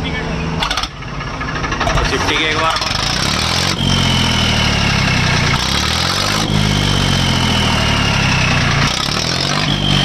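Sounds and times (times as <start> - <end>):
diesel engine revving: 0.0 - 10.0
tractor exhaust whistle: 3.5 - 10.0.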